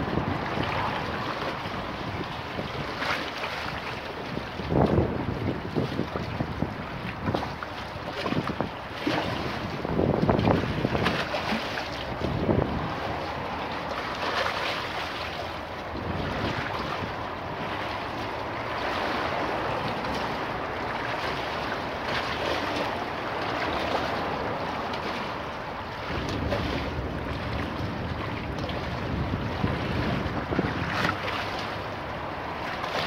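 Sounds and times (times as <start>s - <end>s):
wind buffeting microphone: 0.0s - 33.0s
waves slapping against stone: 7.0s - 33.0s.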